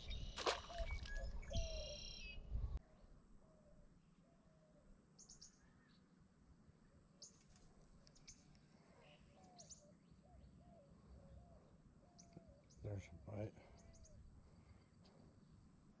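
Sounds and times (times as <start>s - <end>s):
high bird chirps: 0.0s - 2.4s
soft low whistled bird notes: 0.0s - 6.1s, 6.8s - 16.0s.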